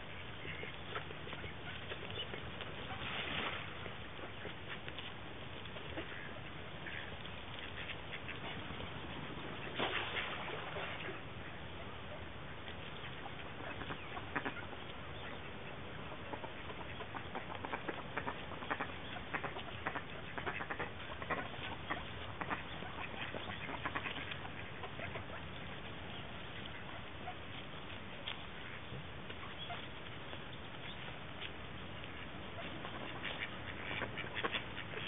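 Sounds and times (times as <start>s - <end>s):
duck bills clicking and nibbling: 0.0s - 35.0s
steady background hiss: 0.0s - 35.0s.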